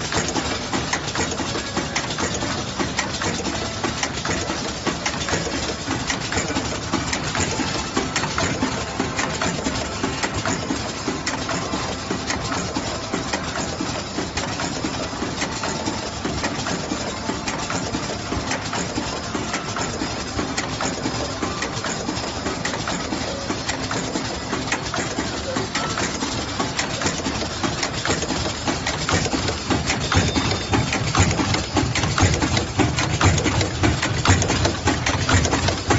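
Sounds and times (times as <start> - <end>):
packing machine clattering: 0.0 - 35.9.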